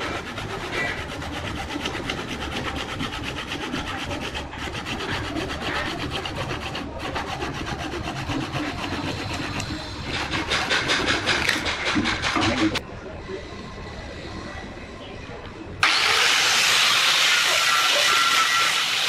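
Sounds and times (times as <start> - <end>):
hand rubbing spinning wood: 0.0 - 12.8.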